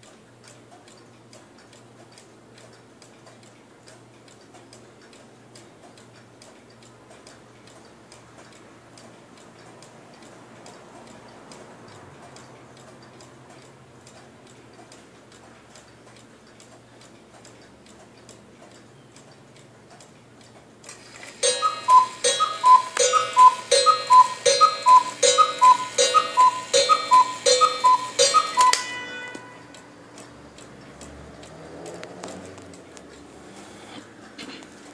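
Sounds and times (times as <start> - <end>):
clock ticking: 0.0 - 33.4
clock mechanism clicks: 0.0 - 34.9
two-note cuckoo calls: 21.3 - 29.8.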